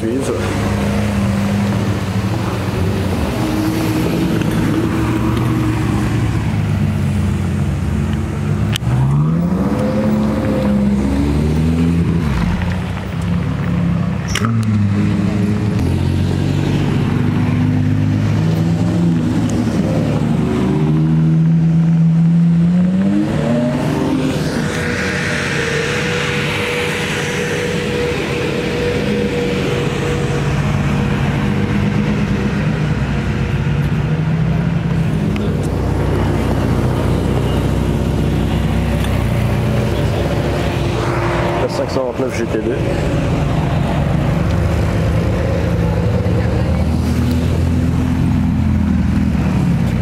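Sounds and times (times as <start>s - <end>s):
engines revving: 0.0s - 50.0s
sports cars driving past: 0.0s - 50.0s.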